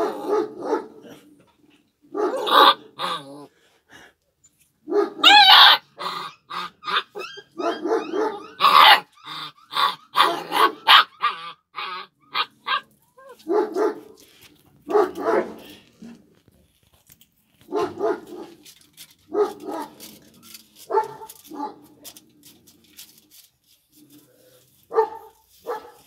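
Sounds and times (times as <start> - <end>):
puppy high yapping barks: 2.2 - 3.2, 4.9 - 14.2, 14.9 - 15.7, 17.7 - 18.6, 19.3 - 20.0, 20.9 - 21.8, 24.9 - 26.0.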